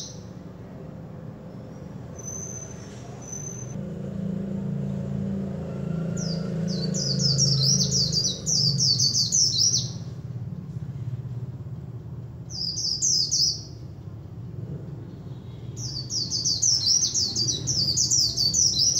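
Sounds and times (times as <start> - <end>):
bird twittering song: 0.0 - 0.5, 1.4 - 3.8, 6.2 - 10.2, 12.5 - 13.8, 15.1 - 18.9.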